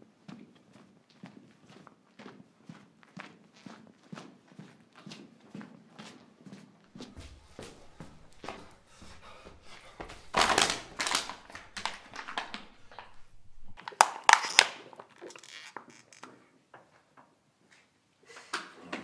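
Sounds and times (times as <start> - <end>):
footsteps crunching on stairs: 0.2 - 13.8.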